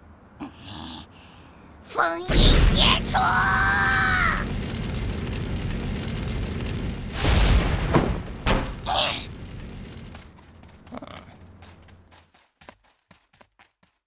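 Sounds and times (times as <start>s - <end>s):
cartoon boom: 2.3s - 9.4s
cartoon low rumble: 2.3s - 11.6s
sharp crack: 2.3s - 11.9s.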